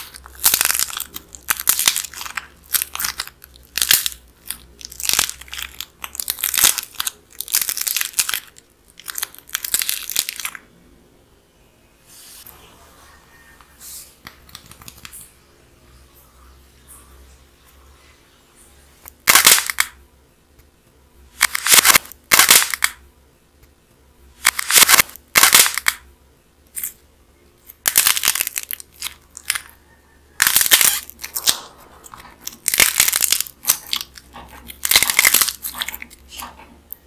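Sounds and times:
clay shell cracking and crunching: 0.0s - 10.7s, 19.1s - 20.0s, 21.4s - 23.0s, 24.4s - 26.1s, 26.7s - 27.0s, 27.6s - 29.8s, 30.4s - 37.0s.

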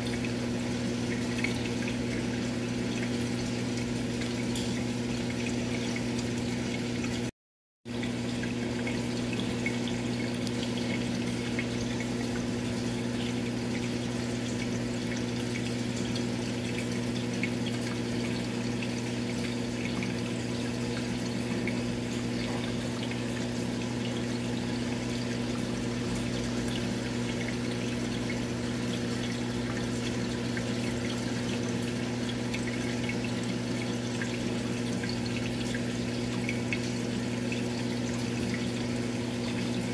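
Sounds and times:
aquarium pump hum: 0.0s - 7.3s, 7.9s - 39.9s
water trickling: 0.0s - 7.3s, 7.9s - 39.9s.

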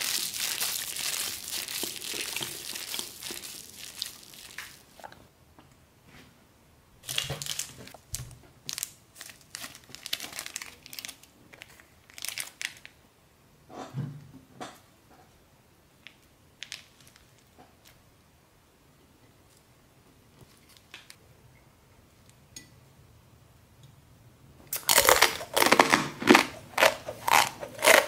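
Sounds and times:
plastic sachets crinkling: 0.0s - 5.1s, 7.0s - 13.0s, 24.8s - 28.0s.

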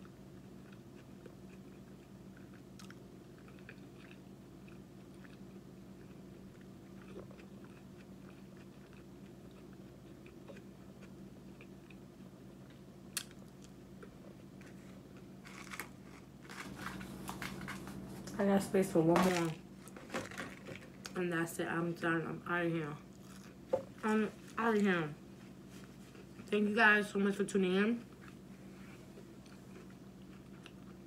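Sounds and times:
person chewing crunchy food: 0.0s - 18.4s, 23.1s - 24.5s, 25.5s - 26.5s, 28.0s - 31.0s
steady low hum: 0.0s - 31.0s.

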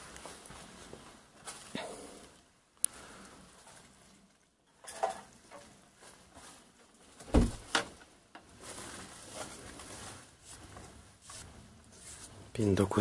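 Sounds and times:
knocks and thumps: 7.2s - 7.9s.

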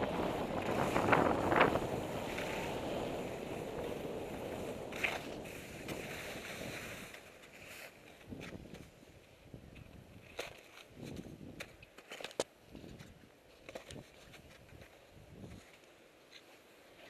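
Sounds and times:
skis scraping over slush: 0.0s - 9.4s.

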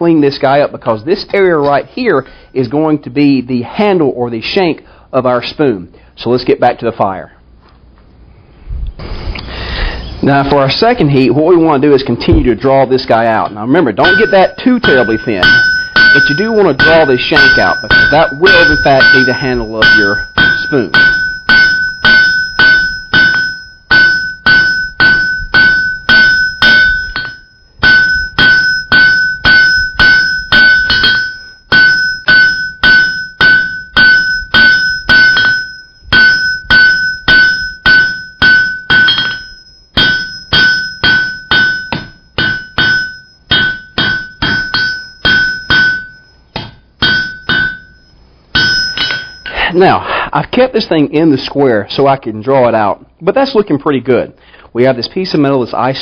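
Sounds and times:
anvil ringing: 13.9s - 50.0s
hammer striking iron on anvil: 14.0s - 49.6s.

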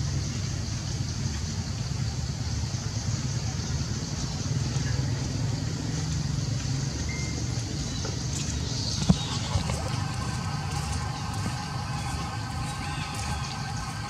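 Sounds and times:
engine idling: 8.4s - 14.0s.

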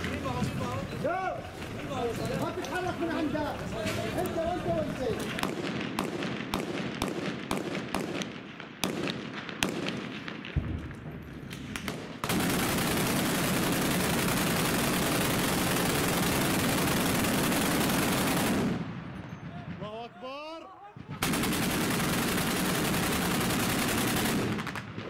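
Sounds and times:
scattered gunshots: 11.7s - 19.0s, 21.0s - 25.0s
heavy machine gun burst: 12.2s - 18.8s, 21.2s - 24.8s.

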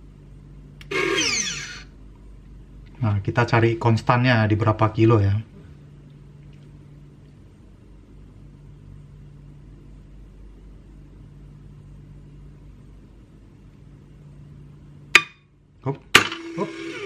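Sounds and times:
winch motor humming: 0.8s - 2.0s, 16.2s - 17.0s.

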